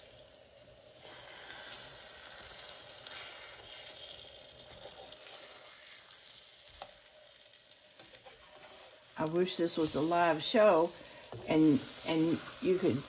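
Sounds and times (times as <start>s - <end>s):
food sizzling in a frying pan: 0.0s - 13.0s
spatula turning food: 0.0s - 13.0s.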